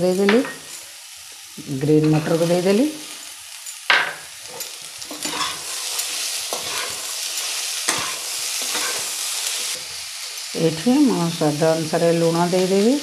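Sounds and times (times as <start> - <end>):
vegetables sizzling in oil: 0.0 - 13.0
spatula scraping a steel pan: 5.2 - 7.1.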